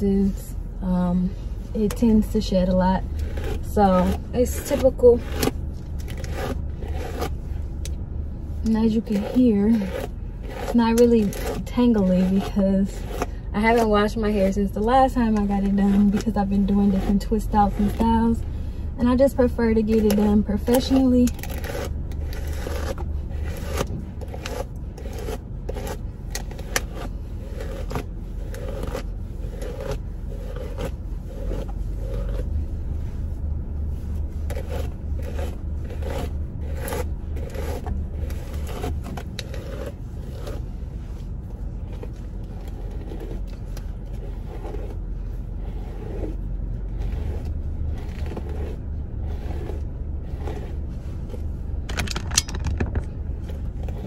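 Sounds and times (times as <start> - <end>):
low hum: 0.0 - 54.0
brush scratching through hair: 0.1 - 7.8, 8.6 - 51.8.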